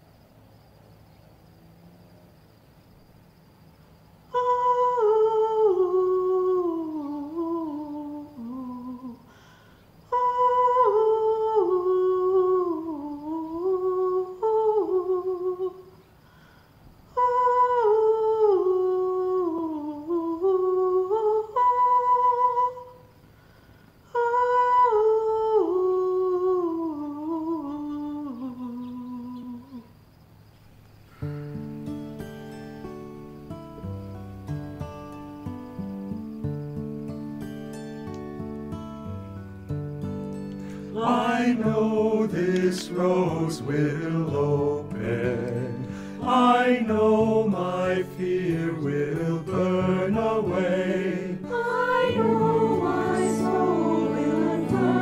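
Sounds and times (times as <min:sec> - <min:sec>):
woman singing wordless melody: 0:04.3 - 0:09.4, 0:10.0 - 0:16.2, 0:17.0 - 0:23.2, 0:24.0 - 0:30.0, 0:40.8 - 0:55.0.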